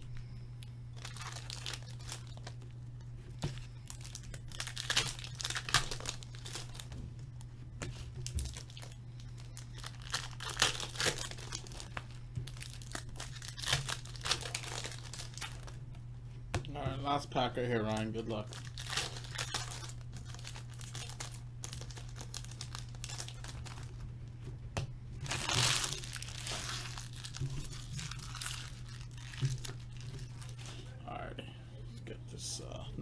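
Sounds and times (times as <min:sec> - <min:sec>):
steady low hum: 0:00.0 - 0:33.0
foil wrappers crinkling and tearing: 0:00.9 - 0:02.8, 0:03.4 - 0:07.0, 0:07.9 - 0:15.8, 0:17.3 - 0:24.0, 0:25.2 - 0:30.9.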